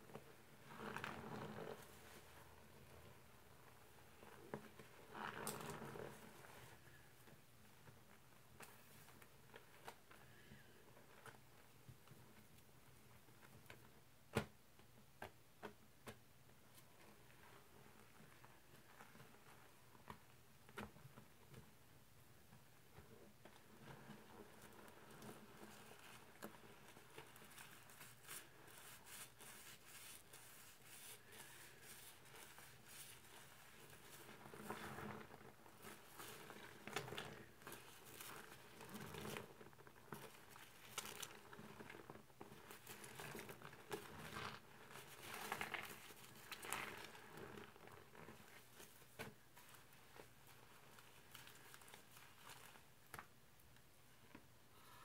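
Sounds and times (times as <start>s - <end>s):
sponge squelching: 23.7s - 41.9s, 42.5s - 52.9s.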